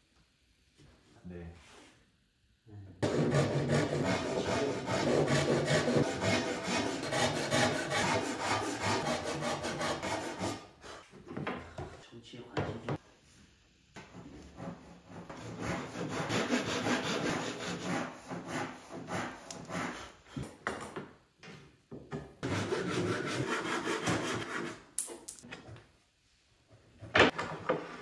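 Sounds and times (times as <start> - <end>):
pull saw cutting wood: 3.0 - 10.6.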